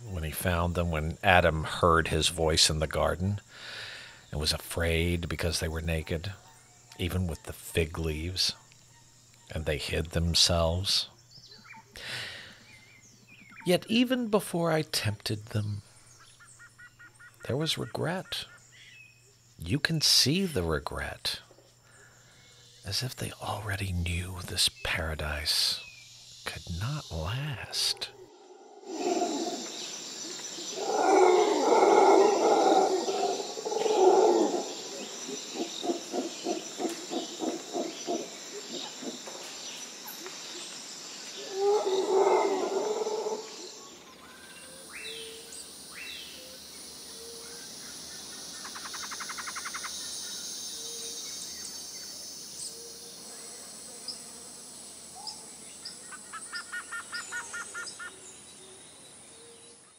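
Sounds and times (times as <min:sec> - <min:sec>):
high insect drone with trills: 0:00.0 - 0:59.9
insects chirping: 0:00.0 - 0:59.9
bird calls: 0:21.8 - 0:54.4, 0:55.0 - 0:59.9
loud animal calls: 0:27.7 - 0:39.3, 0:41.4 - 0:43.8.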